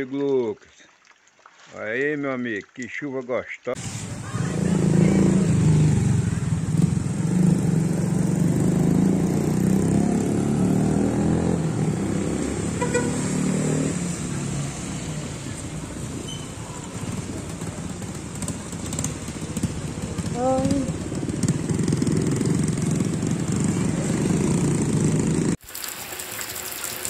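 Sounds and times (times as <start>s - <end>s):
motorcycle engine running: 4.1s - 10.2s, 16.7s - 25.6s.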